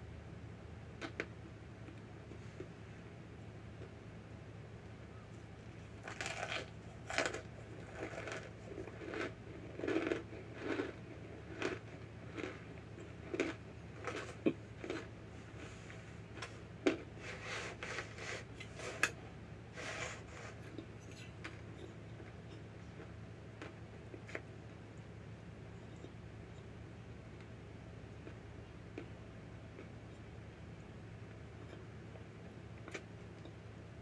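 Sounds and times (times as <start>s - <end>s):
crunchy chewing: 5.3s - 24.8s, 28.1s - 33.6s.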